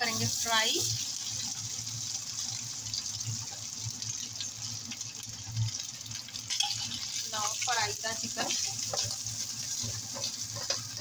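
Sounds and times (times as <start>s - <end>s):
chicken sizzling in oil: 0.0s - 11.0s.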